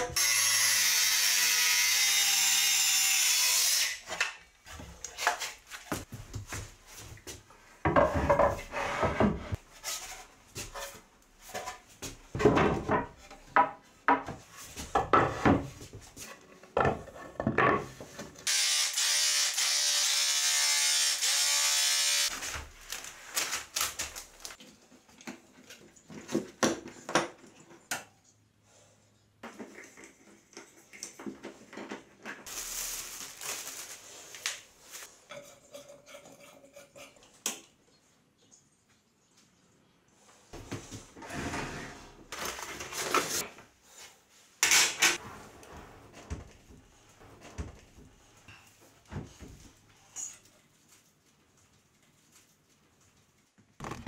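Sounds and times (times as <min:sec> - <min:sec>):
carpentry knocks and clatter: 0:11.5 - 0:15.8, 0:16.7 - 0:18.4
circular saw cutting wood: 0:18.5 - 0:22.3
power tool running: 0:18.5 - 0:22.3.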